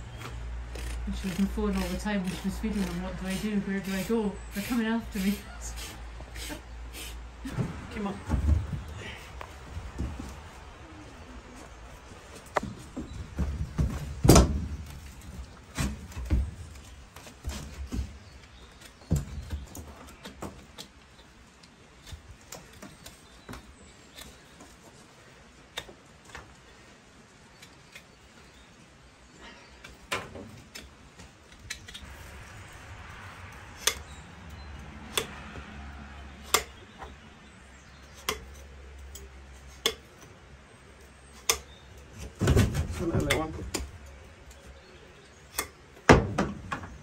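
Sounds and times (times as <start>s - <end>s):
hoof knife scraping: 0.1s - 7.3s.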